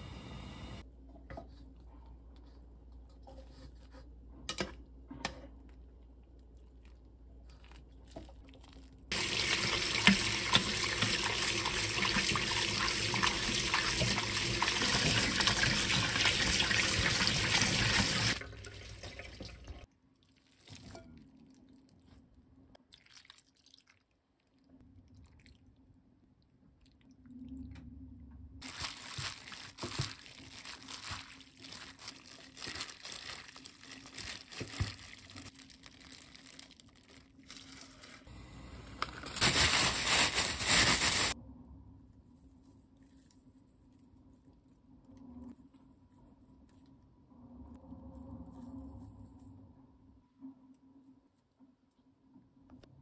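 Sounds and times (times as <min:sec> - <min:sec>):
plastic glove crinkling: 0:06.0 - 0:09.2, 0:28.6 - 0:38.3, 0:39.0 - 0:41.4
tap water running into strainer: 0:09.1 - 0:19.8.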